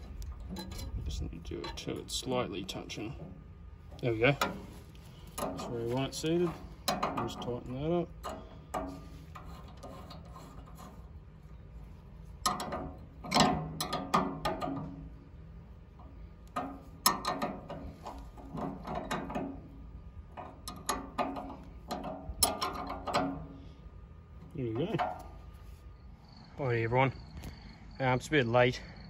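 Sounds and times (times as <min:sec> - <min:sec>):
spanner clicking on nut: 0:12.4 - 0:15.1, 0:16.0 - 0:23.6.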